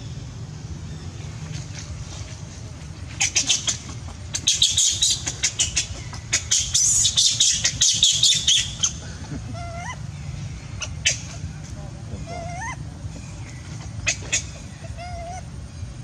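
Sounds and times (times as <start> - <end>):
monkey screaming: 3.2 - 10.2, 12.2 - 13.0, 13.9 - 15.5.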